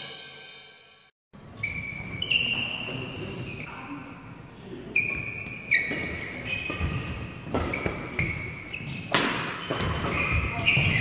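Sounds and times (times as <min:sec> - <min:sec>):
shoes squeaking on court: 0:01.5 - 0:03.7, 0:04.9 - 0:11.0
rackets striking a shuttlecock: 0:09.1 - 0:10.6.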